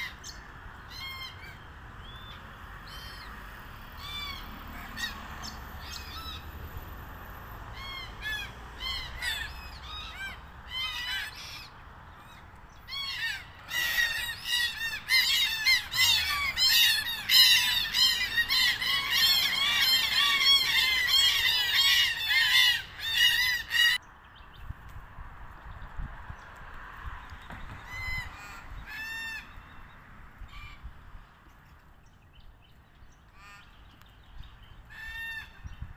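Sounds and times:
cockatoos calling: 0:07.7 - 0:24.0.

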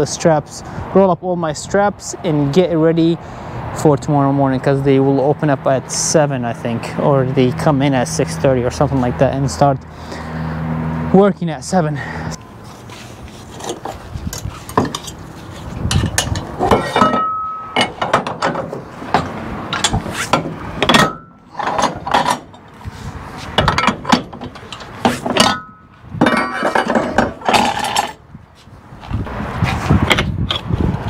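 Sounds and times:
metal winch clanks and clicks: 0:15.9 - 0:22.8, 0:23.6 - 0:28.2
short metallic rings: 0:16.0 - 0:18.4, 0:20.8 - 0:22.7, 0:23.7 - 0:28.2.

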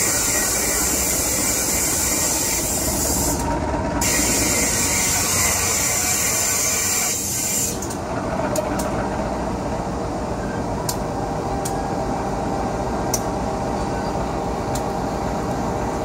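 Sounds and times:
loud air hiss: 0:00.0 - 0:03.4, 0:04.0 - 0:07.8
locomotive running past: 0:00.0 - 0:06.6
wheels clicking over rails: 0:00.0 - 0:09.2.

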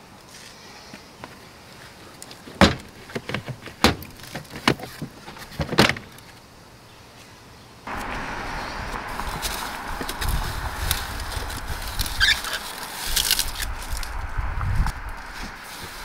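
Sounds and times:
plastic panels knocking: 0:02.6 - 0:06.1
steady hiss: 0:04.0 - 0:16.0.

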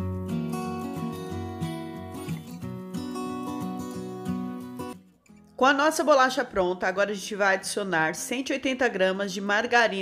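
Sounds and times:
acoustic guitar strumming: 0:00.0 - 0:05.7.

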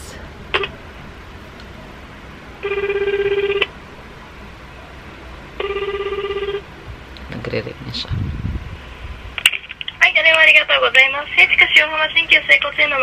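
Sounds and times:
telephone ringback tone: 0:02.6 - 0:03.7, 0:05.6 - 0:06.6.

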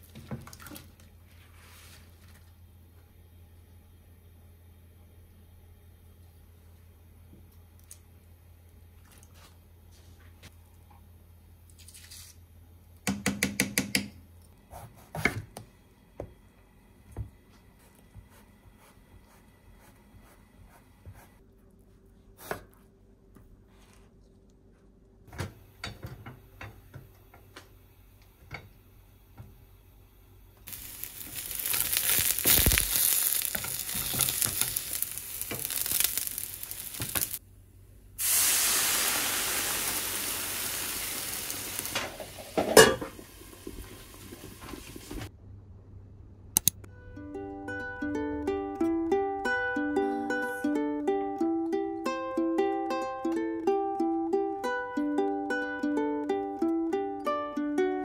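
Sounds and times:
food frying in oil: 0:30.7 - 0:37.4, 0:38.2 - 0:45.3
granules shaken over pot: 0:30.7 - 0:37.4
pans and utensils clicking: 0:41.9 - 0:43.2.

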